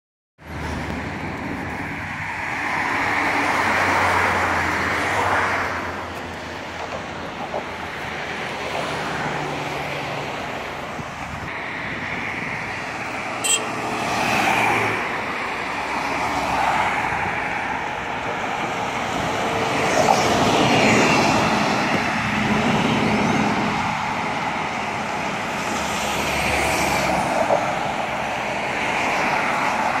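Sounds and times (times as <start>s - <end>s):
vehicles passing: 0.4s - 30.0s
tyre and wind noise: 18.3s - 25.2s.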